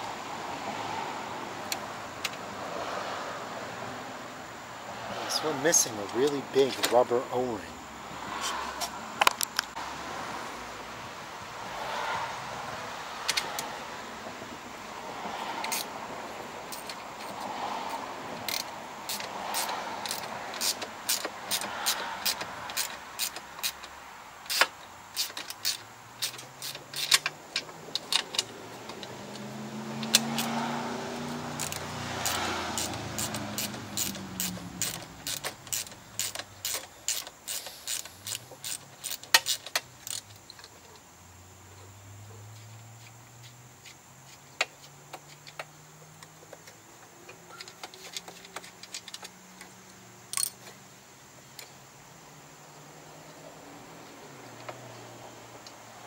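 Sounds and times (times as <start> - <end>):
vehicle passing: 0.0 - 24.4, 25.0 - 39.1
metal parts and tools clinking: 24.5 - 29.4, 31.6 - 40.8, 50.3 - 50.8.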